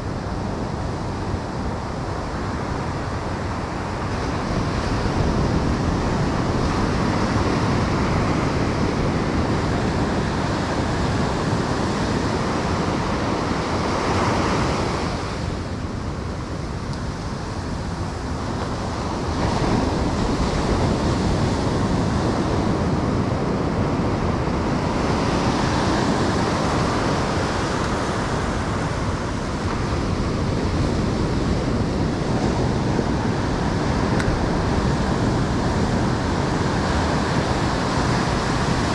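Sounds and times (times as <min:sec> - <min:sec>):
wind noise on microphone: 0:00.0 - 0:38.9
surf breaking on beach: 0:00.2 - 0:38.9.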